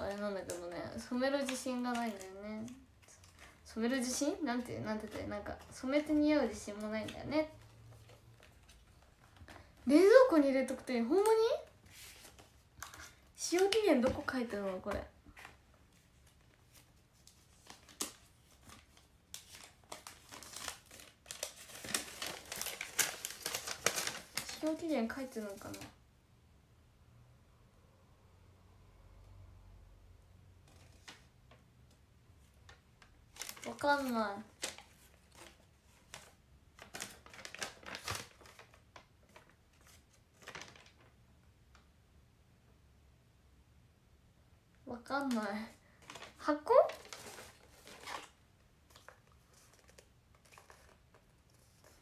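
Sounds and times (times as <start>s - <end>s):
paper leaflet rustling: 0.0s - 25.9s, 32.7s - 41.2s, 45.3s - 52.0s
packaging crinkling: 16.1s - 25.9s, 33.0s - 41.2s, 45.3s - 52.0s.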